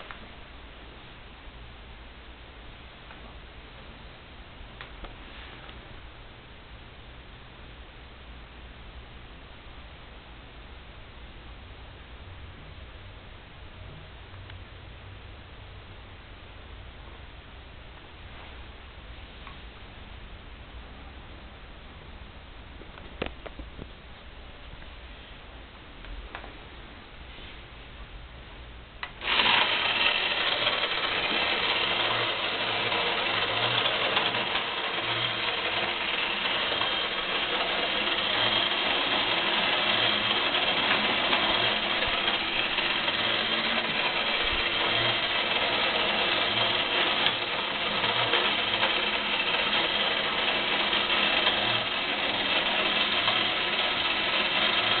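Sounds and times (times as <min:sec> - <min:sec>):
toy race track mechanism whirring: 0:29.1 - 0:55.0
tin toy cars rattling: 0:29.2 - 0:55.0.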